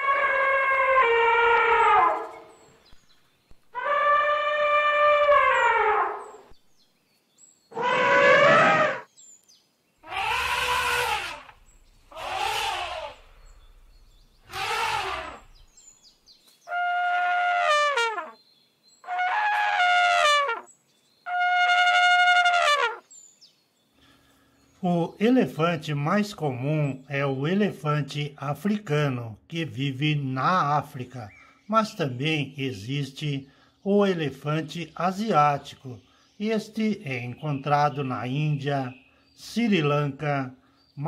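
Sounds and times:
elephant trumpeting: 0.0 - 2.6, 3.7 - 6.5, 7.7 - 9.1, 10.0 - 13.7, 14.4 - 15.6, 16.7 - 18.4, 19.0 - 20.7, 21.3 - 23.0.

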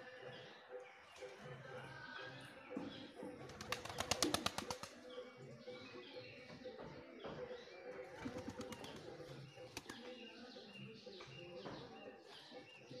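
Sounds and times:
small birds chirping: 0.0 - 13.0
pigeon wings flapping: 3.5 - 5.0, 8.2 - 9.1.

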